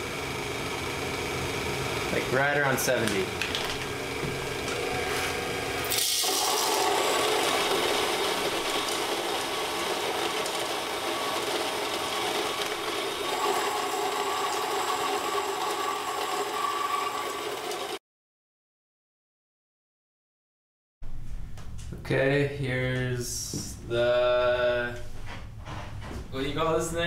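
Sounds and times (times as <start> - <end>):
coffee grinder grinding beans: 0.1 - 18.0.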